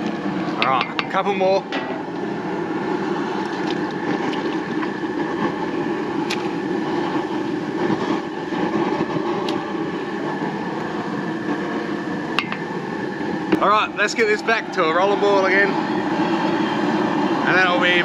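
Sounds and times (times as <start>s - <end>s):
gas burner roaring: 0.0s - 18.0s.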